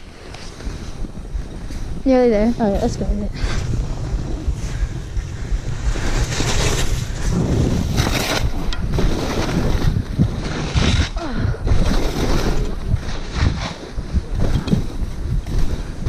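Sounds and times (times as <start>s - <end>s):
skis sliding on snow: 0.0s - 11.2s
wind buffeting microphone: 0.0s - 16.0s.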